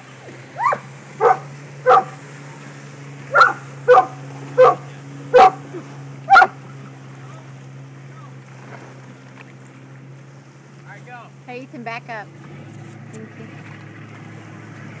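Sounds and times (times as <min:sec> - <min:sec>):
boat engine idling: 0:00.0 - 0:15.0
dog barking: 0:00.6 - 0:02.2, 0:03.3 - 0:05.6, 0:06.3 - 0:06.6.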